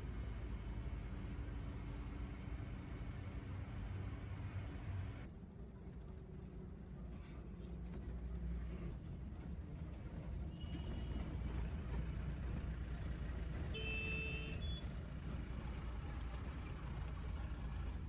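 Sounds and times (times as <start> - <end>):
truck engine rumble from cab: 0.0 - 18.0
horn honk: 13.7 - 14.8.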